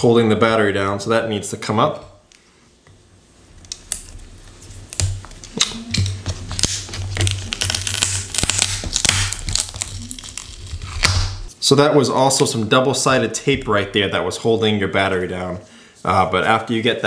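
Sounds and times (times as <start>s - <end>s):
adhesive tape tearing: 3.6s - 11.5s.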